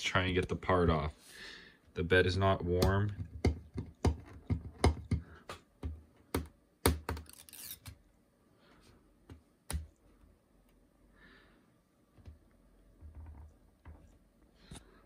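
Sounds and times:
scratchy peel: 7.3 - 8.0.

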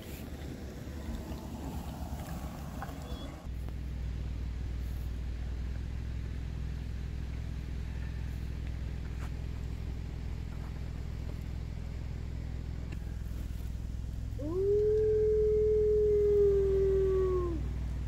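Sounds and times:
low steady hum: 0.0 - 18.0
wolf howling: 14.4 - 17.7.

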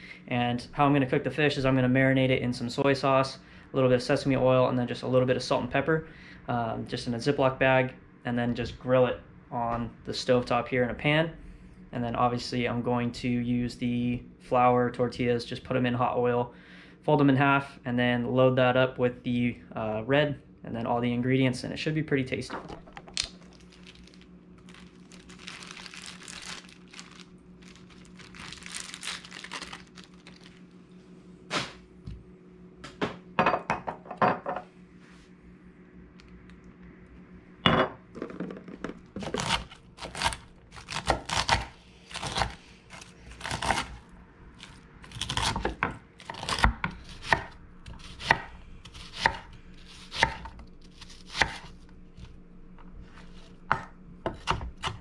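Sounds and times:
faint steady hum: 0.0 - 55.0
plastic bag rustling: 22.7 - 30.8.

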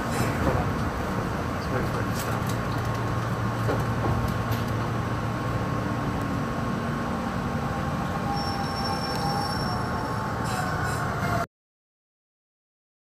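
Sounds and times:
electric train hum and rumble: 0.0 - 11.5.

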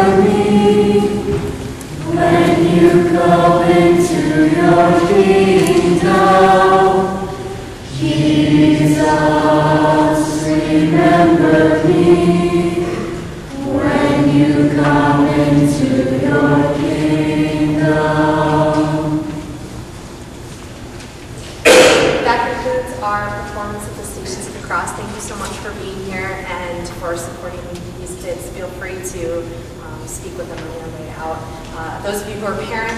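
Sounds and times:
choir singing a hymn: 0.0 - 19.7.

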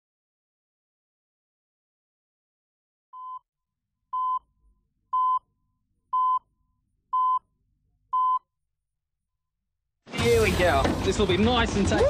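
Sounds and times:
countdown short beeps: 5.2 - 5.4, 6.2 - 6.4, 7.2 - 7.4.

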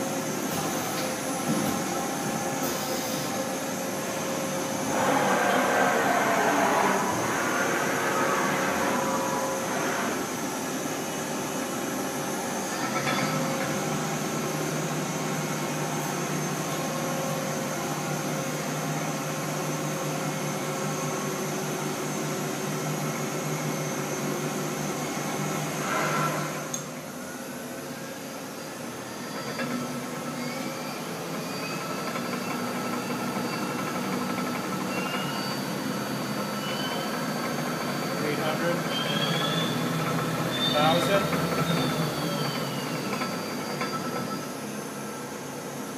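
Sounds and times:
lathe machine hum: 0.0 - 45.9
faint rising whine: 2.9 - 12.6.

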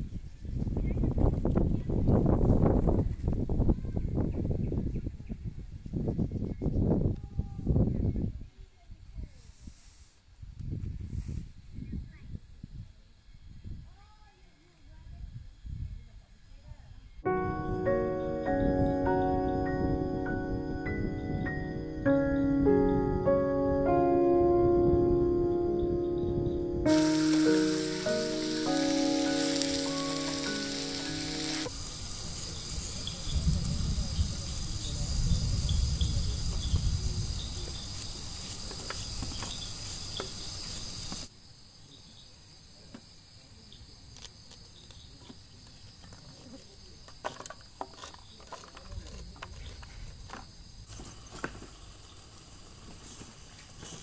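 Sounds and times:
insects droning: 7.7 - 54.0
music: 17.2 - 31.7.

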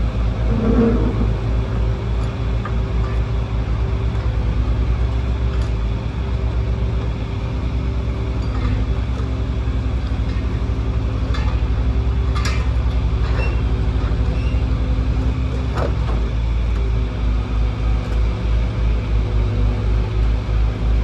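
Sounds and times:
excavator diesel engine running: 0.0 - 21.0
brief squeak: 13.3 - 13.7, 14.3 - 14.6.

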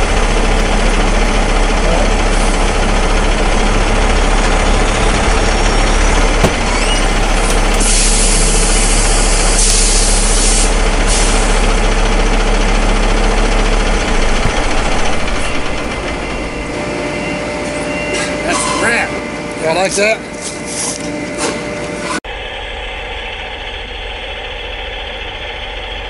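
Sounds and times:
diesel truck engine idling: 0.0 - 20.4, 22.3 - 26.0
air brake hiss: 7.8 - 11.6.

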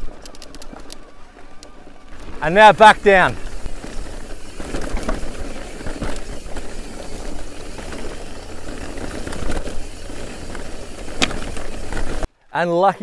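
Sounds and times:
bike rattling and knocking: 0.0 - 12.3
tyres on gravel: 0.0 - 13.0.

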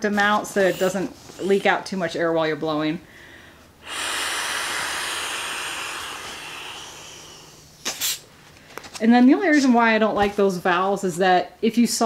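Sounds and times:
person blowing air into valve: 0.8 - 1.8, 3.8 - 8.3.

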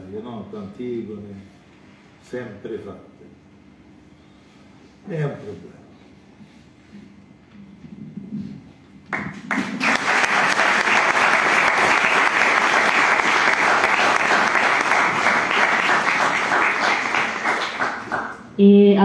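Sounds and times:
audience applause: 9.1 - 18.4.

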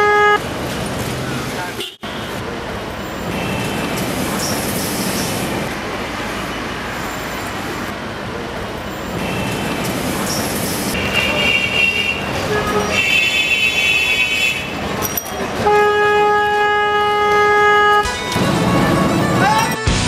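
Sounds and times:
vehicle horns: 0.0 - 0.5, 1.8 - 2.4, 11.0 - 14.8, 15.5 - 20.0
road traffic din: 0.0 - 20.0.

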